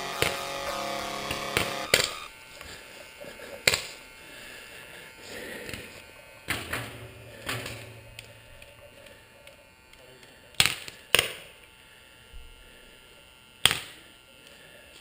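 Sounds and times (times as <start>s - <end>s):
background music: 0.0s - 2.3s.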